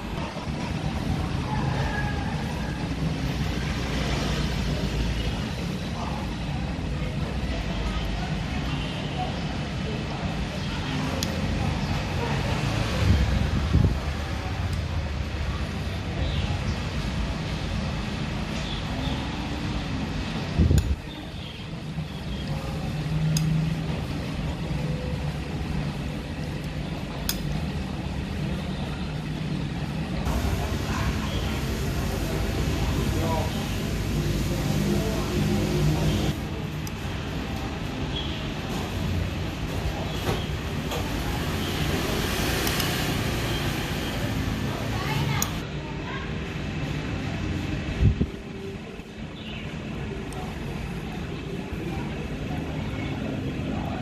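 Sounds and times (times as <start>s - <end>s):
road traffic rumble: 0.0s - 54.0s.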